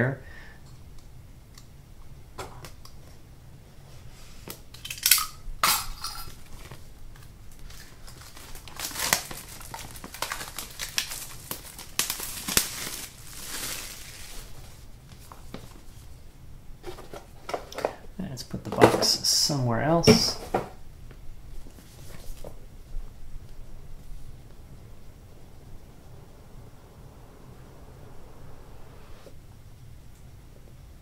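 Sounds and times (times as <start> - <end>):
packaging rustling: 6.5 - 16.0.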